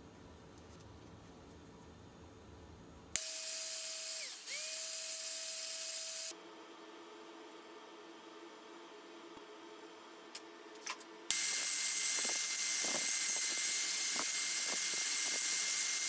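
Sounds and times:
angle grinder cutting metal: 3.2s - 6.3s, 11.3s - 16.0s.

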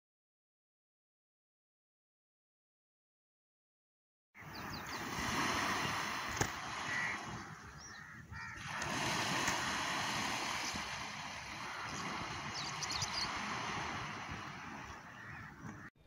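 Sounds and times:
short bird calls: 4.4s - 8.8s, 11.5s - 13.5s
small waves washing on beach: 4.4s - 15.9s.

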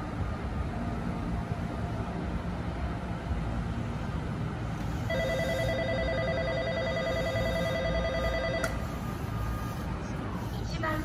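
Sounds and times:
low rumble of trains: 0.0s - 11.0s
electric bell ringing: 5.1s - 8.7s.

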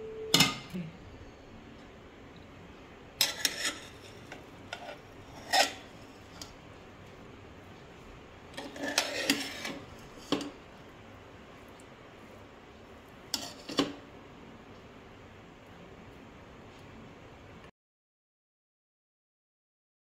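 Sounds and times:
metal ladle scraping pot: 3.2s - 6.5s, 8.6s - 10.5s, 13.3s - 13.9s.

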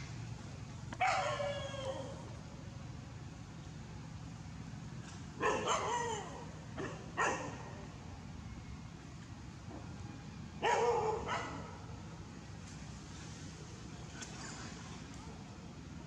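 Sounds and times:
dog barking: 1.0s - 2.1s, 5.4s - 7.6s, 10.6s - 11.8s.

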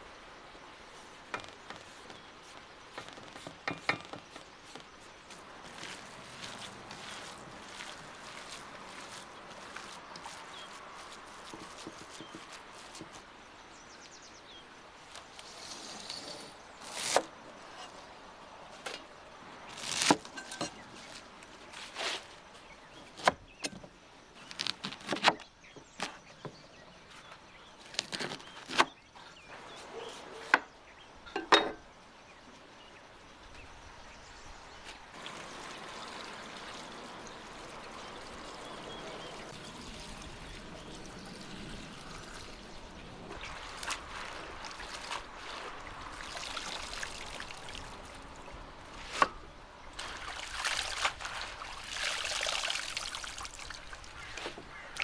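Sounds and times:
hands swishing greens in water: 5.3s - 13.2s, 43.4s - 47.7s
water pouring into metal basin: 35.2s - 38.6s
water splash: 35.2s - 48.3s, 50.0s - 54.2s.

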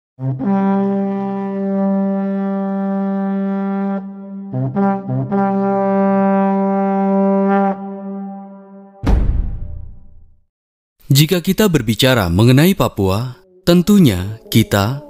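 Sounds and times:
wooden horn blowing: 0.2s - 8.9s.

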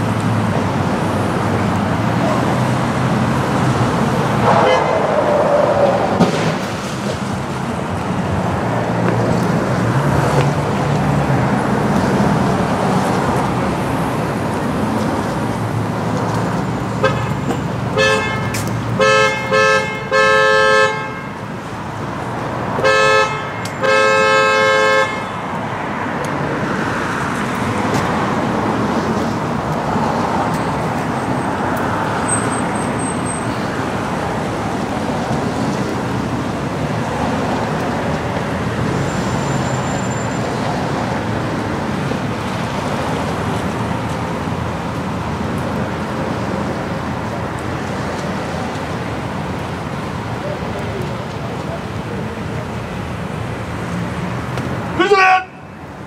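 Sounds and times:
vehicle horn honking: 4.4s - 5.0s, 17.0s - 21.4s, 22.8s - 25.4s, 55.0s - 55.8s.

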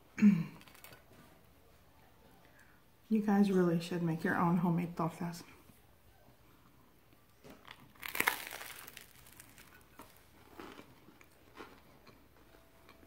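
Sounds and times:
bread crust crunching: 0.5s - 1.1s, 7.4s - 13.0s
chewing: 7.6s - 13.0s.

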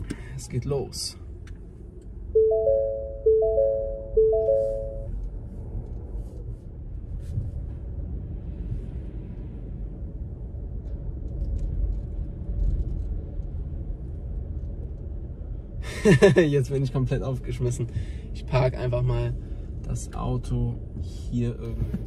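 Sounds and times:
car rolling rumble inside cabin: 0.0s - 22.0s
car three-note electronic chime: 2.4s - 5.1s.

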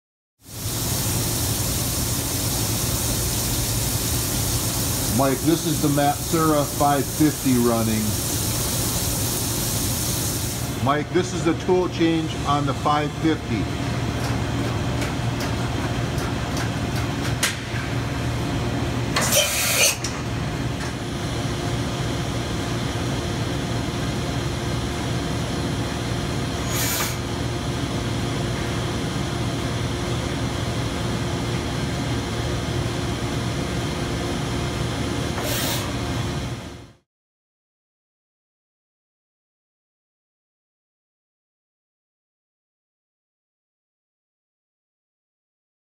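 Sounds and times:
milling machine hum: 0.7s - 37.0s
air hisses: 26.6s - 27.2s.

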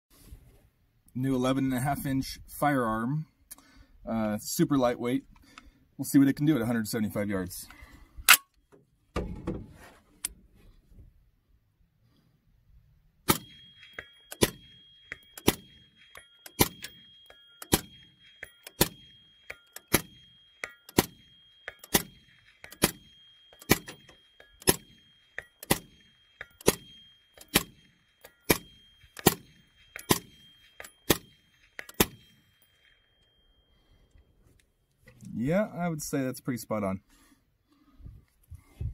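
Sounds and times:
suppressed rifle shots: 13.3s - 33.0s.

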